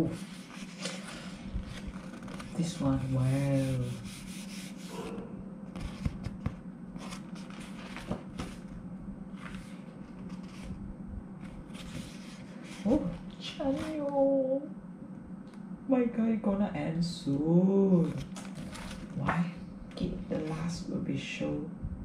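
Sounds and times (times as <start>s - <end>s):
paper pages rustling: 0.0s - 5.1s, 5.7s - 10.8s, 11.4s - 14.1s, 18.0s - 19.4s.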